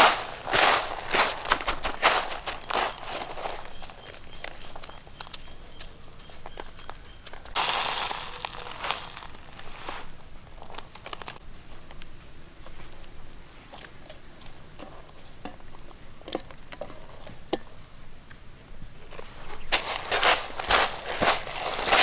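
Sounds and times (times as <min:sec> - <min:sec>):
wet clicks and patter: 0:01.3 - 0:07.6, 0:13.7 - 0:18.4.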